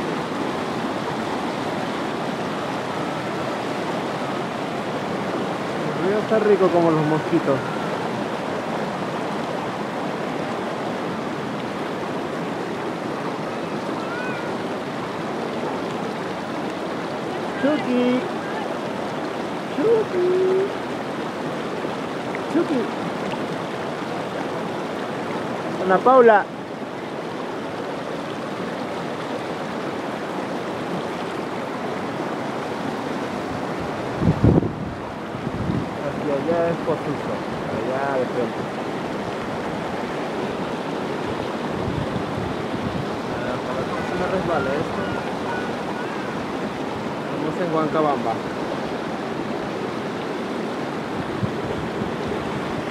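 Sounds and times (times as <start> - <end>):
river rushing over rocks: 0.0 - 52.9.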